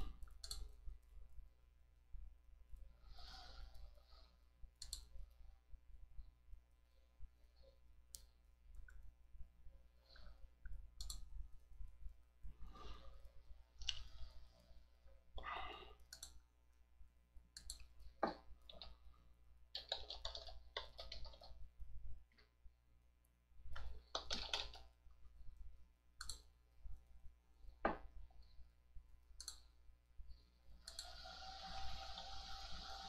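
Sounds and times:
keyboard typing: 0.0 - 0.8, 19.7 - 21.6, 23.7 - 25.0
computer mouse clicks: 0.0 - 1.1, 4.8 - 5.4, 8.1 - 9.1, 10.1 - 11.4, 16.0 - 16.5, 17.5 - 19.0, 19.8 - 21.7, 23.7 - 25.0, 26.2 - 26.6, 29.4 - 29.8, 30.8 - 33.0
steady hiss: 30.9 - 33.0.

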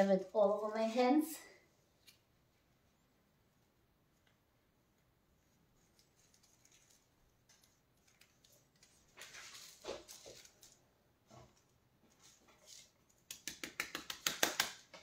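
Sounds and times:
metal leaf rustling and crinkling: 5.7 - 13.1.

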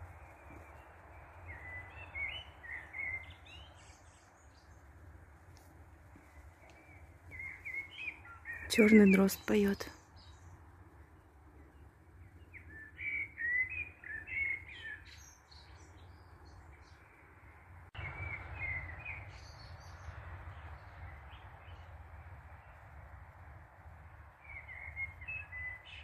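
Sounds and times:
blackbird singing: 0.2 - 4.8, 6.6 - 10.6, 11.7 - 17.2, 18.0 - 20.1, 24.4 - 26.0.

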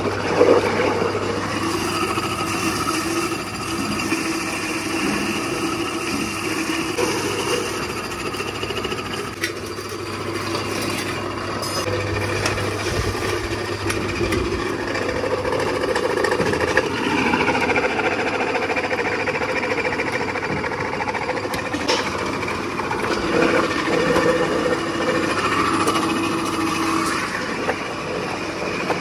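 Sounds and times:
machine clattering: 6.7 - 27.8.

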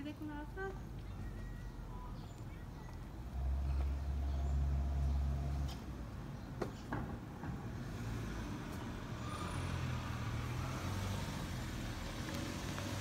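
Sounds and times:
engine running low rumble: 0.0 - 13.0.

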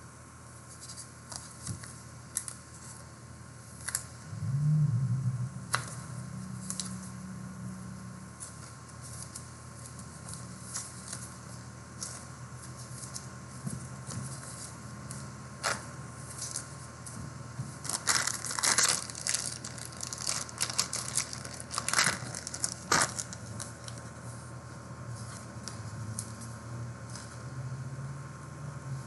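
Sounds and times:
plastic wrapper tearing and crinkling: 17.8 - 24.1.

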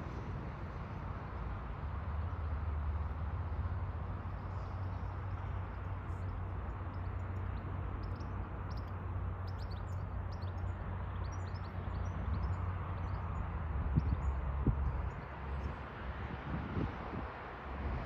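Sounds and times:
small birds chirping: 4.8 - 15.8.

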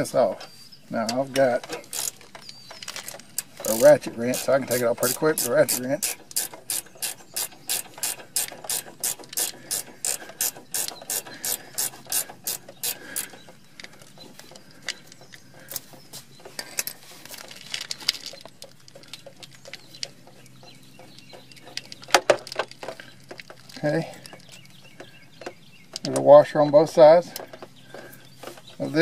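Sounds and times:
ratchet wrench clicking: 1.7 - 13.4.

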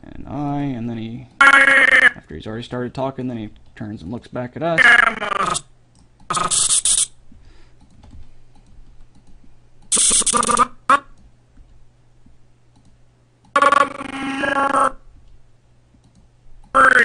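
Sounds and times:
cartoon character voice snippets: 4.8 - 5.6, 13.6 - 15.0, 16.8 - 17.0
keyboard and mouse clicks: 7.8 - 11.3, 12.7 - 13.6, 15.2 - 16.8.

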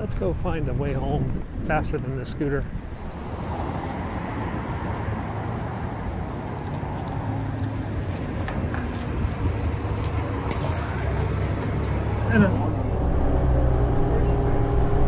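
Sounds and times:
road traffic rumble: 0.0 - 15.0
deep engine hum: 10.8 - 15.0.

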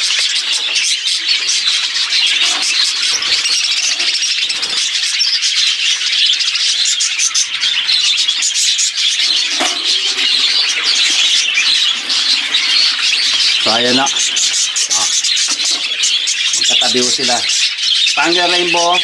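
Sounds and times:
budgerigars chattering and warbling: 0.0 - 19.0.

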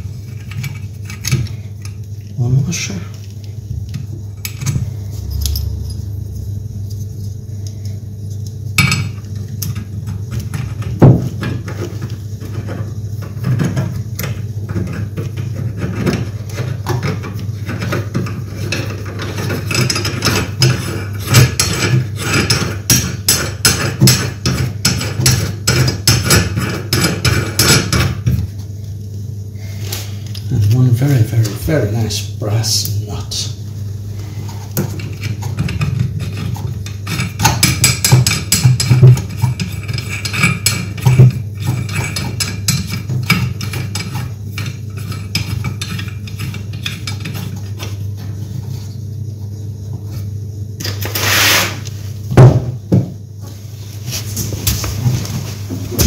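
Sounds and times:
low hum: 3.0 - 10.9.

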